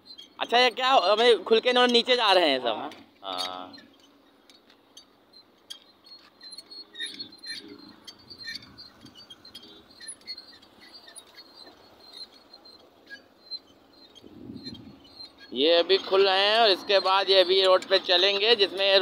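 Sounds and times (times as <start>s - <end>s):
hand crank clicking and squeaking: 0.0s - 19.0s.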